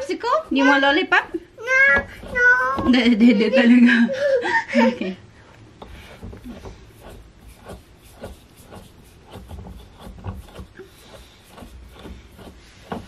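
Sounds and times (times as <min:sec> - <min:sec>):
couch parts knocking and rubbing: 0:01.8 - 0:03.3, 0:05.7 - 0:13.0.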